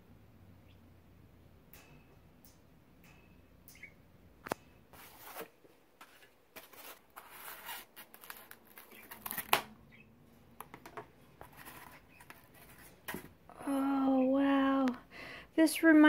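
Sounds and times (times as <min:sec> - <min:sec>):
foam scraping and rustling: 0:05.0 - 0:09.4.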